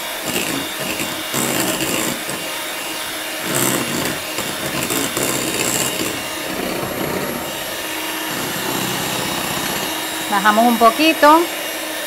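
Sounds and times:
electric hand mixer running: 0.0s - 12.0s.

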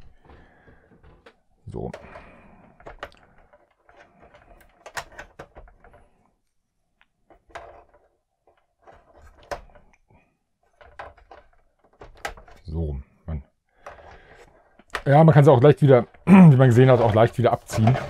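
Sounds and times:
plastic toy parts clicking: 2.8s - 6.0s.

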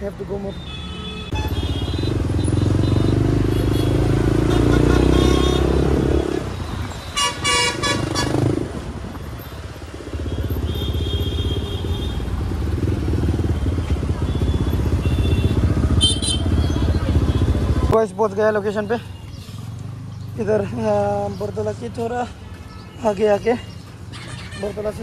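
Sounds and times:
vehicle horn honking: 2.8s - 5.9s, 7.2s - 8.4s, 14.3s - 16.6s.

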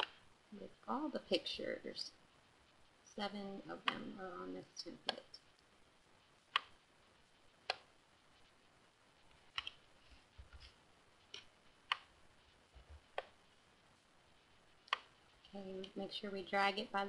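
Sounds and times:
computer mouse clicks: 6.5s - 6.8s, 7.6s - 7.9s, 9.5s - 9.8s, 11.3s - 12.1s, 14.8s - 15.1s.

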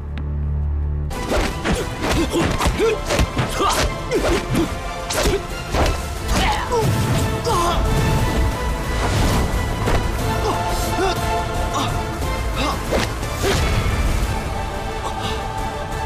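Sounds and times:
film score: 0.0s - 16.0s
low music drone: 0.0s - 16.0s
punch and block whacks: 1.3s - 6.4s.

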